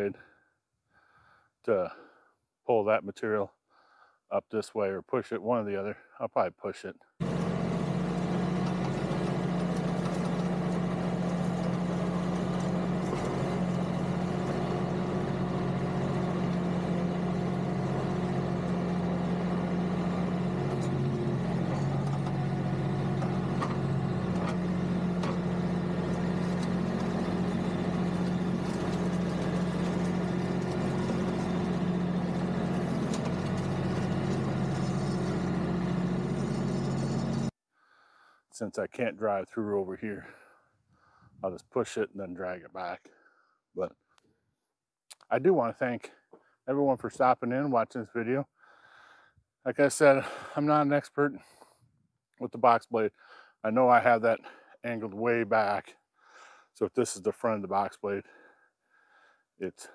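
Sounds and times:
tractor diesel engine running: 7.2s - 37.5s.

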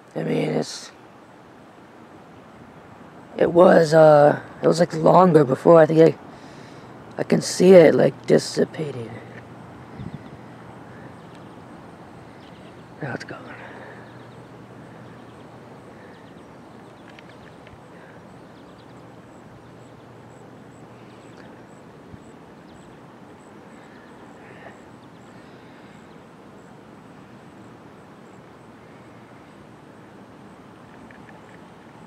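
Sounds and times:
background hiss: 0.0s - 32.0s.

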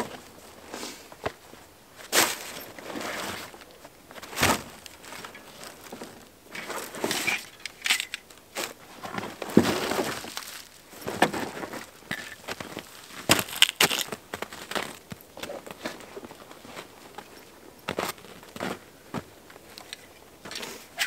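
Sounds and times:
camping gear rustling and clunking: 0.0s - 21.0s
footsteps crunching in snow: 8.6s - 19.4s.

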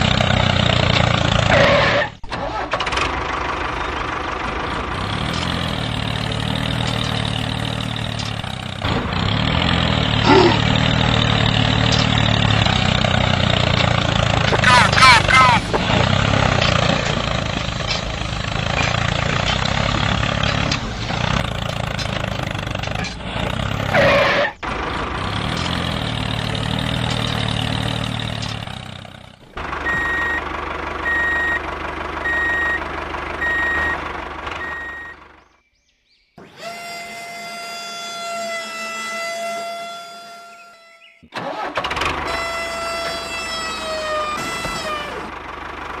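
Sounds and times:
steady engine drone: 0.0s - 35.5s
truck engine running: 0.0s - 35.6s, 36.4s - 46.0s
reversing alarm beeping: 29.8s - 30.4s, 31.0s - 31.6s, 32.2s - 34.0s, 34.6s - 35.2s.

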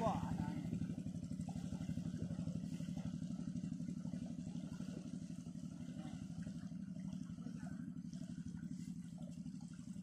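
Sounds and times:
small engine pulsing hum: 0.0s - 10.0s.

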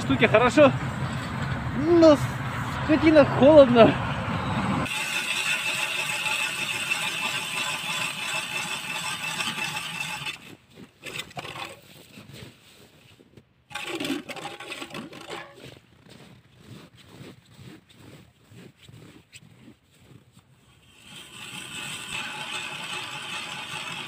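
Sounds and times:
ice auger grinding into ice: 4.8s - 12.6s, 13.7s - 24.0s
scrapes and knocks: 4.8s - 12.6s, 13.3s - 24.0s.

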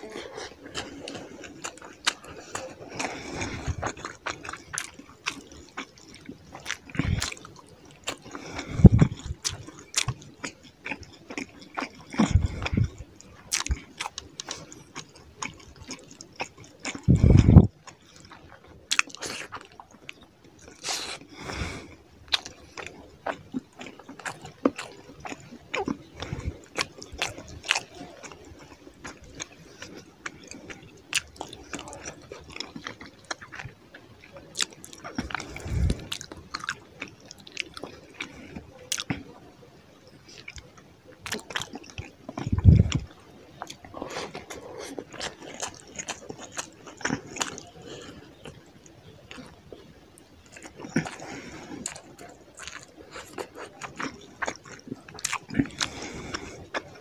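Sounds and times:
chewing and lip smacking: 0.0s - 57.0s.

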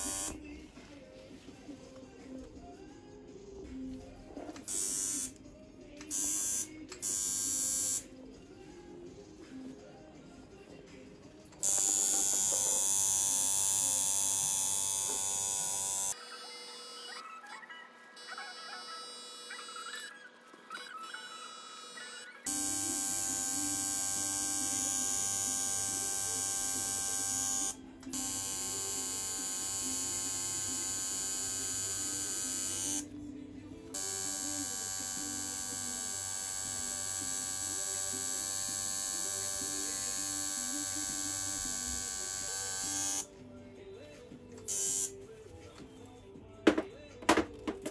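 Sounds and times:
tattoo machine buzzing: 0.0s - 0.4s, 4.6s - 5.3s, 6.1s - 8.1s, 11.6s - 17.2s, 18.2s - 20.1s, 21.1s - 33.1s, 34.0s - 43.3s, 44.7s - 45.2s
background music: 0.0s - 47.9s.

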